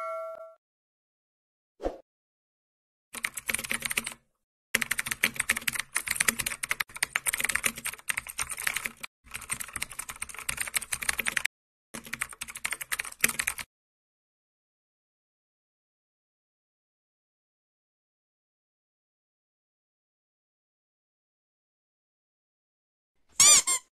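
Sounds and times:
rapid keyboard key clicks: 3.2 - 4.2, 4.8 - 13.7.

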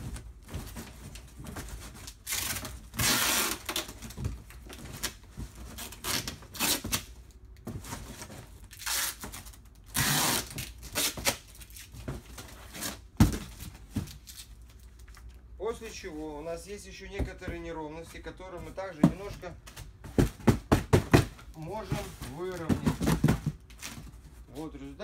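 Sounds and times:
packing tape ripping: 2.1 - 4.0, 5.8 - 7.1, 8.7 - 11.9.

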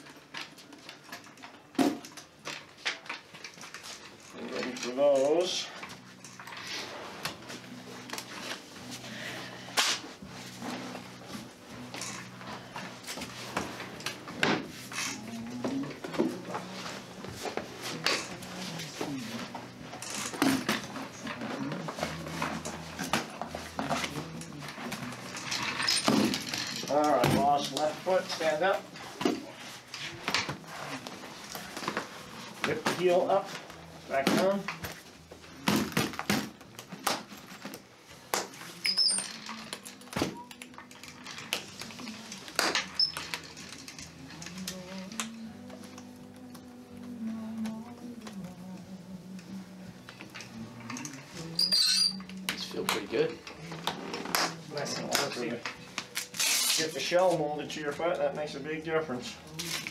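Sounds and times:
ski boot gear handled: 53.4 - 57.4.

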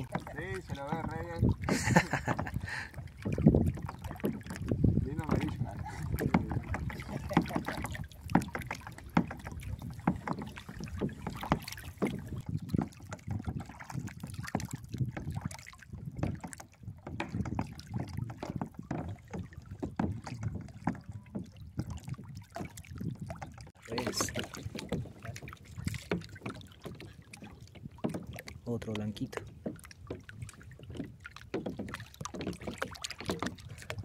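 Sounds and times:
wind buffeting microphone: 0.0 - 32.6
waves lapping against kayak hull: 0.0 - 34.0.

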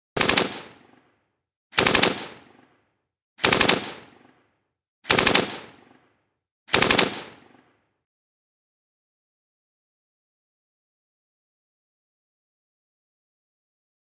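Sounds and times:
machine gun firing bursts: 0.2 - 0.9, 1.8 - 2.5, 3.4 - 4.2, 5.1 - 5.8, 6.7 - 7.5.

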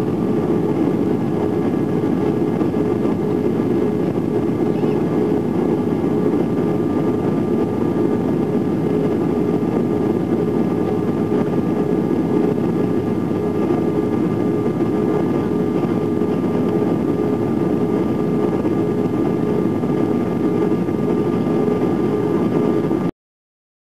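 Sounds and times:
aircraft cabin engine rumble: 0.0 - 23.1
faint steady whines: 0.0 - 23.1.

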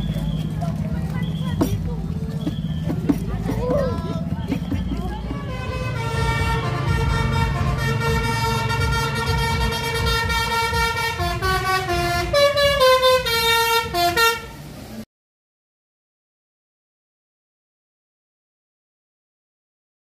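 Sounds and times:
bus engine driving past: 0.0 - 15.1
musical bus air horn: 5.3 - 14.7.

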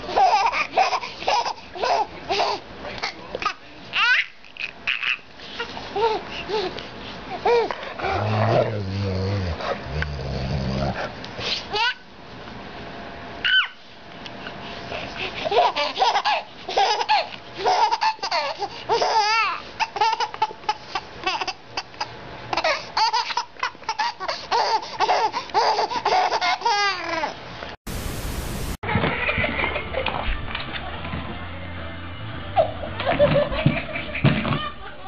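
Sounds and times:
baby laughing: 0.0 - 7.8, 11.7 - 12.1, 15.2 - 27.4, 28.9 - 30.2
steady hiss: 27.9 - 28.8.

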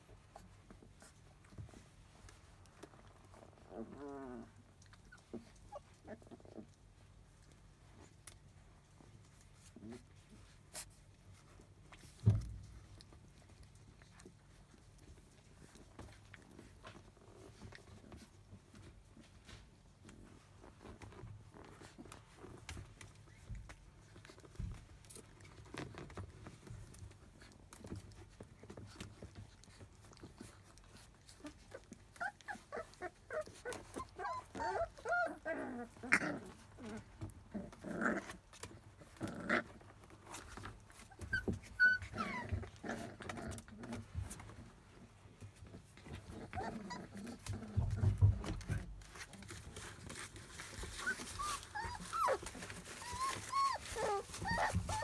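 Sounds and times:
puppies rustling in bed: 0.0 - 55.0
puppies squeaky growling: 3.5 - 6.7, 30.9 - 44.0, 46.1 - 55.0.

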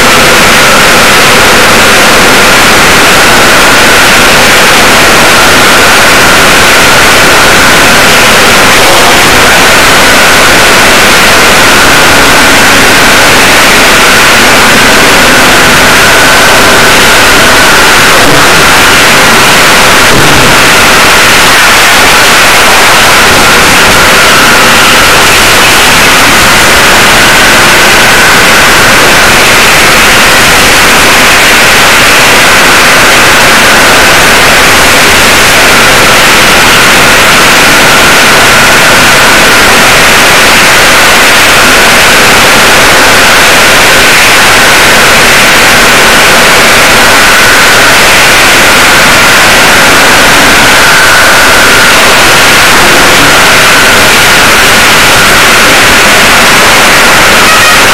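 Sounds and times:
faint steady whine: 0.0 - 57.9
static-like hiss: 5.1 - 21.4.

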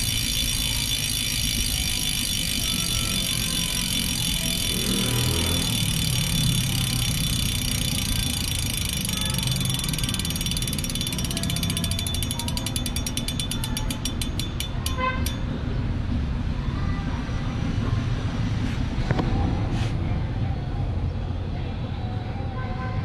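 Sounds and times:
bicycle freehub clicking: 0.0 - 15.8
low steady rumble: 0.0 - 21.7.

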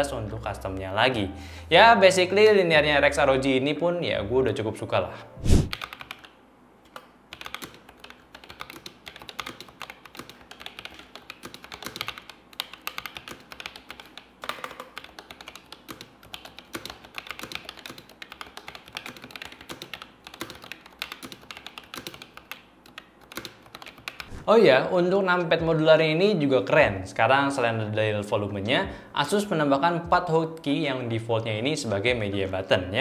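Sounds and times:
mechanical keyboard typing: 5.7 - 6.4, 7.3 - 24.3.

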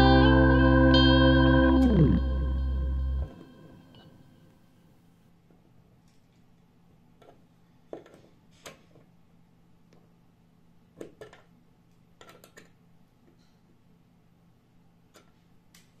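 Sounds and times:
low steady hum: 0.0 - 4.7.

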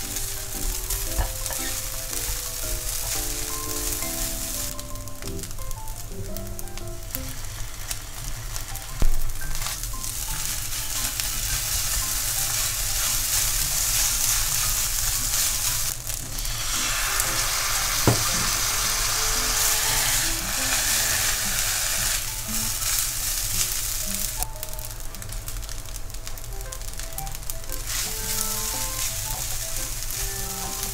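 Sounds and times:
rice sizzling in a pan: 0.0 - 30.9
spatula stirring: 9.6 - 24.3, 27.7 - 30.9.

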